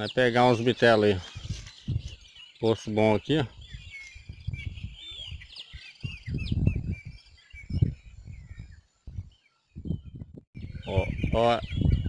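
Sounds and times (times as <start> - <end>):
small birds chirping: 0.0 - 12.0
dull low thumps: 3.6 - 5.4, 6.0 - 12.0.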